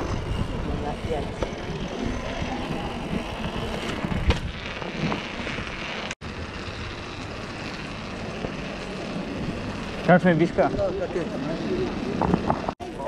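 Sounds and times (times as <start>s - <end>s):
wind noise on microphone: 0.0s - 7.5s
bike rumbling over paving stones: 0.0s - 13.0s.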